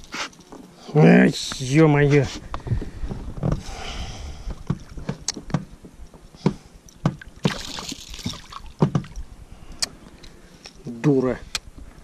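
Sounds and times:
sharp knocks and clicks: 4.6 - 5.7, 8.8 - 9.2
fish splashing at water surface: 7.2 - 8.8.

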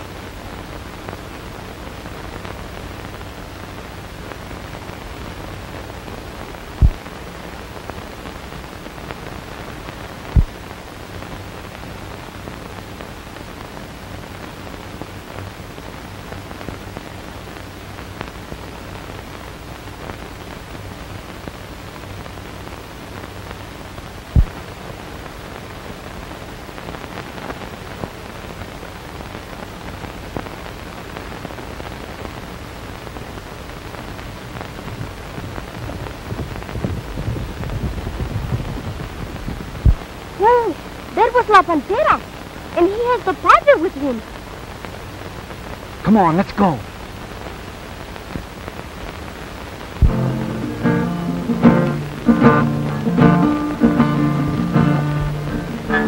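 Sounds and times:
film soundtrack hiss and crackle: 0.0 - 56.0
low thumps: 24.4 - 24.6, 50.0 - 56.0.

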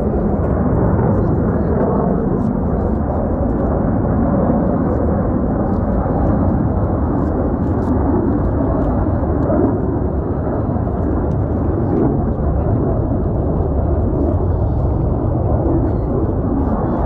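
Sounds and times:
jet engine roar: 0.0 - 17.0.

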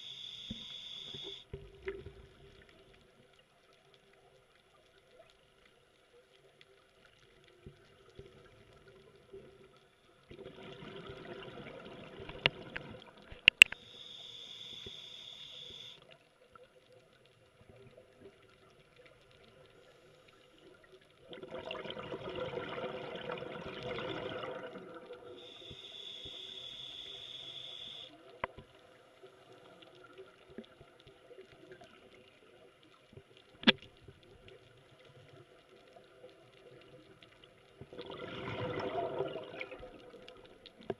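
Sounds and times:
high regulator hiss: 0.0 - 1.4, 13.8 - 16.0, 25.4 - 28.1
exhaled bubbles underwater: 10.3 - 13.4, 20.8 - 25.9, 34.3 - 40.9.

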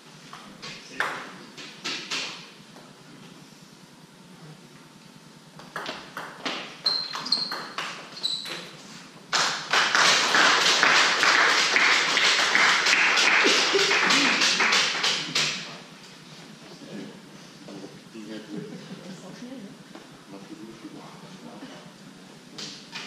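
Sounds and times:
spectators applauding: 9.3 - 15.7.

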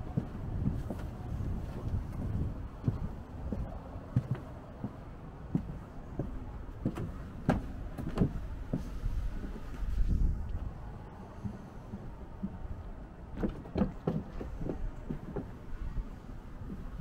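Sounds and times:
footsteps walking: 0.0 - 17.0
low background rumble: 0.0 - 17.0.

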